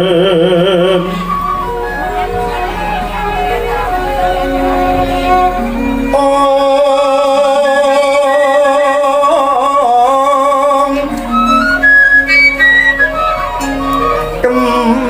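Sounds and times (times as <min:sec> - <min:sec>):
gamelan music: 0:01.0 - 0:06.7, 0:10.8 - 0:15.0.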